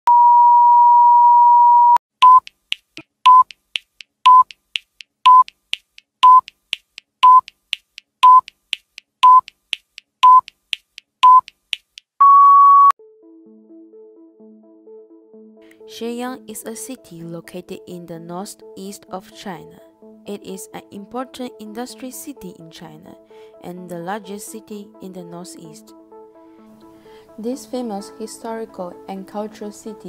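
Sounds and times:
longer higher beep: 0.1 - 2.4, 12.2 - 13.0
short countdown beeps: 1.6 - 2.5, 3.3 - 3.5, 4.3 - 4.6, 5.3 - 5.6, 6.2 - 6.5, 7.2 - 7.6, 8.2 - 8.6, 9.2 - 9.6, 10.2 - 10.6, 11.2 - 11.5.

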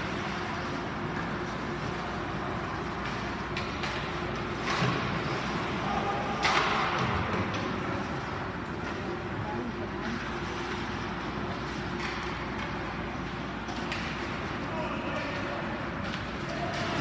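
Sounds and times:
skates scraping on ice: 0.0 - 9.3
hockey stick and puck clicks: 0.2 - 5.3, 10.1 - 17.0.

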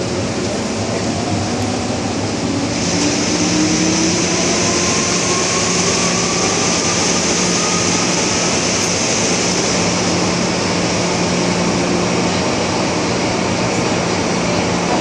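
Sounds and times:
wheel and rail noise: 0.0 - 15.0
electric train motors whining: 0.6 - 14.6
hiss: 2.7 - 11.2.

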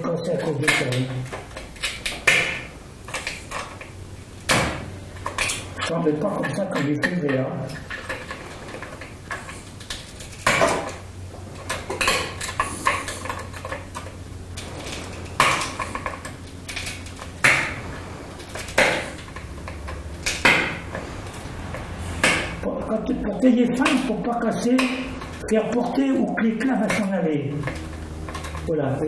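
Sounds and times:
glass flakes snapping: 7.8 - 21.0.

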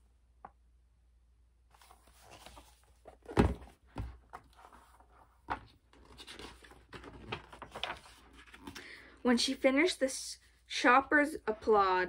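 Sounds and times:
paper pages rustling: 1.7 - 9.0
book thumping: 1.8 - 6.2.

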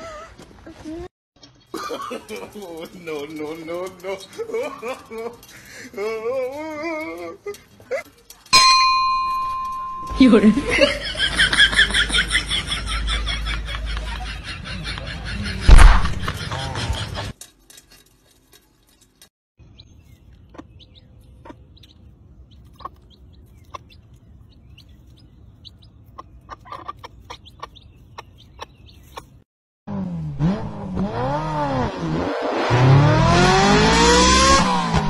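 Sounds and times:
chicks peeping: 19.6 - 29.4
engine revving: 29.9 - 35.0.

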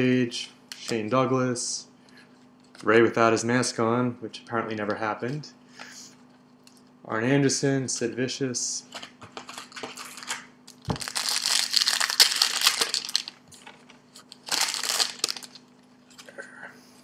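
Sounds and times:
plastic wrapper crinkling: 9.4 - 16.3.

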